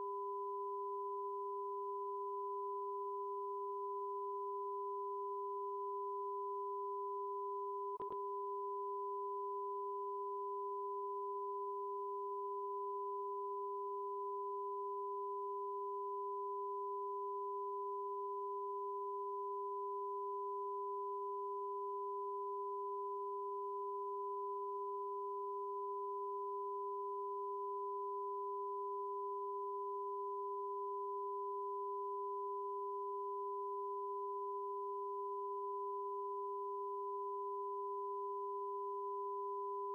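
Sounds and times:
faint click: 8.0s - 8.2s.

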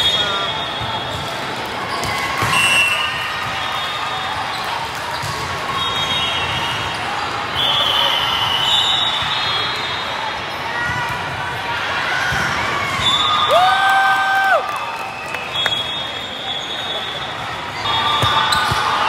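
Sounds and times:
shoe squeals: 0.0s - 10.3s, 15.2s - 19.0s
volleyballs struck and bouncing: 18.1s - 19.0s.

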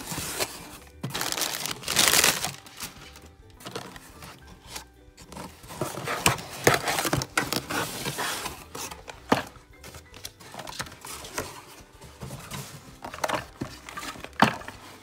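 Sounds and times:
plastic blister packs crinkling: 0.0s - 4.1s
background music: 0.0s - 15.0s.

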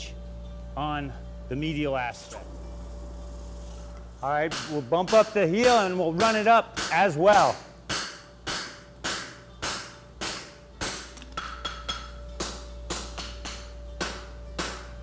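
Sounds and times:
hammer striking steel on anvil: 4.4s - 15.0s.

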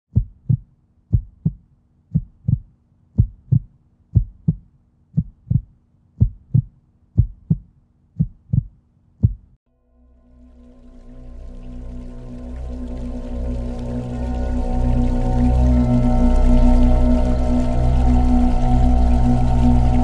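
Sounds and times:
heartbeat thumps: 0.1s - 9.6s.

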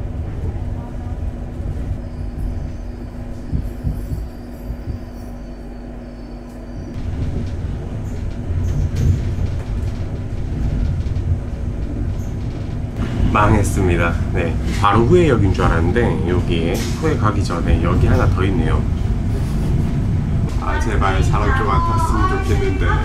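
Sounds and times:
train wheels rumbling on rails: 0.0s - 23.0s
faint high squeal: 2.0s - 7.0s.

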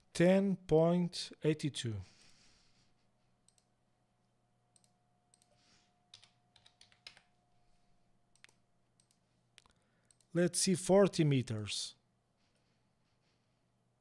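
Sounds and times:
computer keyboard keystrokes: 4.7s - 7.3s.

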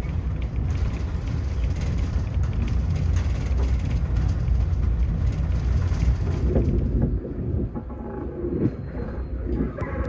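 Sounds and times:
light clicks and rattles: 0.0s - 7.1s
train wheels rumbling on track: 0.0s - 10.0s.

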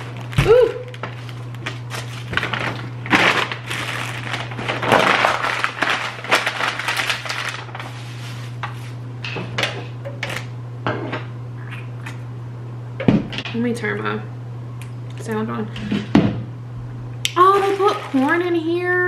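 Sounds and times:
plastic packaging crinkling: 0.0s - 9.0s, 17.4s - 18.6s
steady low hum: 0.0s - 19.0s.

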